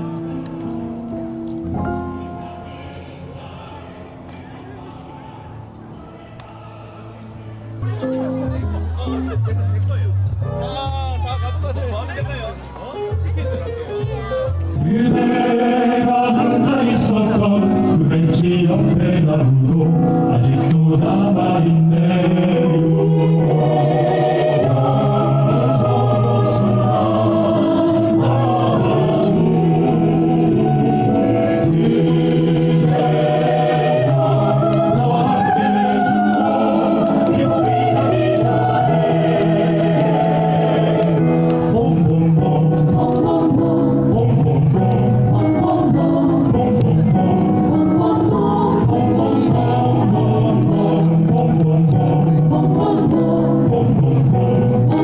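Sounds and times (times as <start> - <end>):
choir singing in harmony: 14.8 - 55.0.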